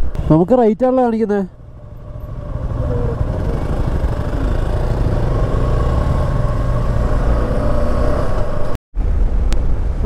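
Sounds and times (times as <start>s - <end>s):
motorcycle engine running: 1.6s - 6.6s
wind rumble on microphone: 5.4s - 10.0s.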